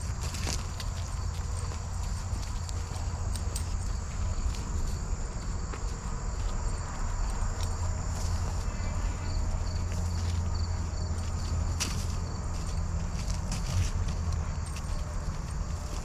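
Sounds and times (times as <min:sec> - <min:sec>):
insects chirring: 0:00.0 - 0:16.0
rapid insect chirps: 0:00.0 - 0:16.0
soft footsteps: 0:00.0 - 0:16.0.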